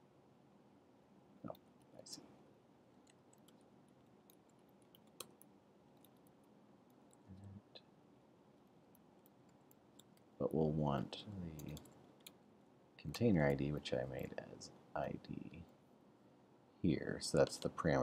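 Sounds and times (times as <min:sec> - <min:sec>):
keyboard and mouse clicks: 0:03.0 - 0:07.2, 0:11.6 - 0:12.4.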